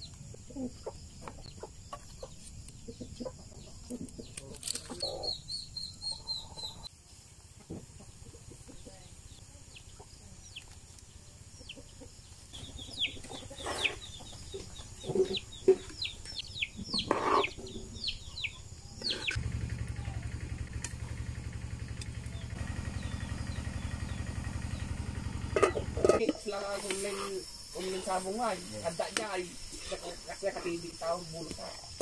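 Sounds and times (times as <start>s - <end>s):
chickens clucking: 0.0s - 19.4s, 23.0s - 30.8s
low pulsing hum: 19.3s - 26.2s.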